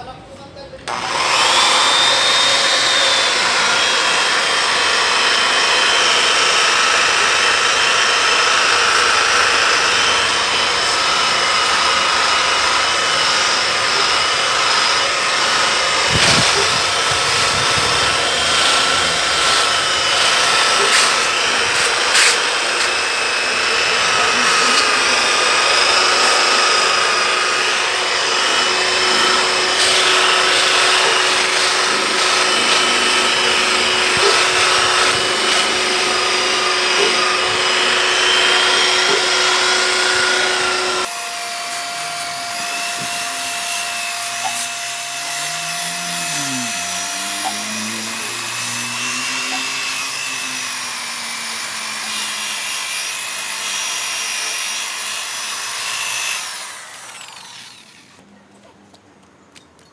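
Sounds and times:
electric rotary polisher running: 0.8 - 58.2.

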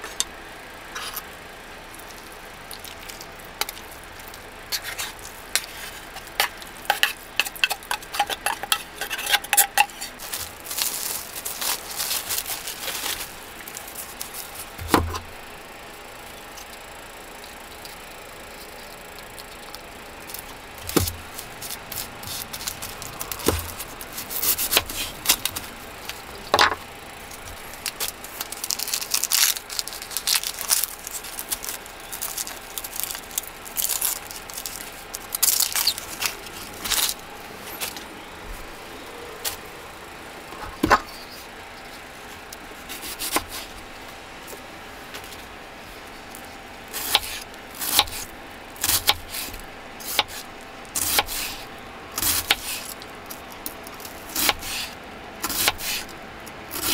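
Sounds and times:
onion skin crackling: 0.8 - 15.7, 16.4 - 40.0.

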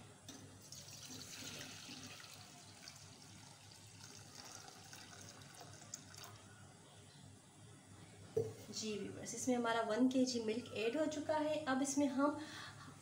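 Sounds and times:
milk pouring into a steel pan: 0.6 - 6.6.

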